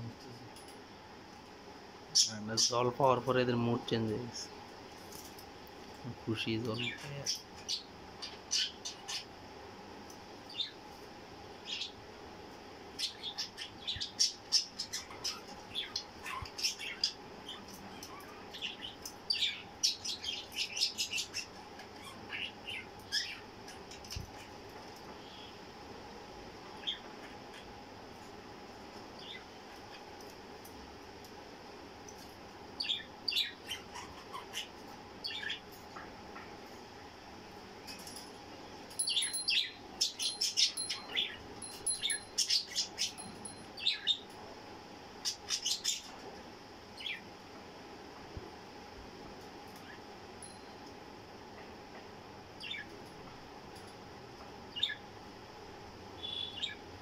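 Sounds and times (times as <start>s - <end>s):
whistled bird notes: 56.2s - 56.8s.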